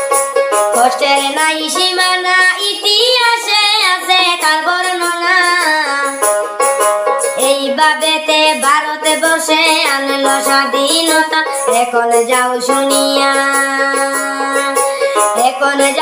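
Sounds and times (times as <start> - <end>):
steady instrumental accompaniment: 5.0 - 7.6.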